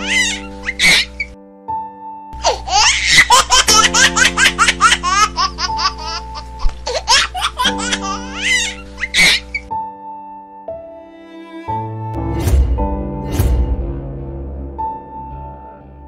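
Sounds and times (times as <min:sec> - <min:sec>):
baby laughing: 0:00.0 - 0:01.3, 0:02.4 - 0:09.7
background music sustained chord: 0:00.0 - 0:16.0.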